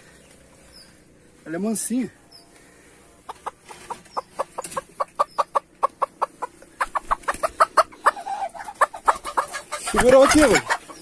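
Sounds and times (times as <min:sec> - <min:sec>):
hen clucking rapidly: 0:02.7 - 0:11.0.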